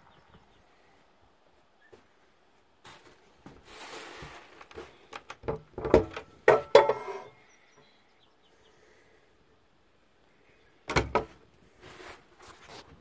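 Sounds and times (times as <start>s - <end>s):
door scraping rustle: 2.9s - 5.1s
door knocks and rattles: 10.9s - 11.3s.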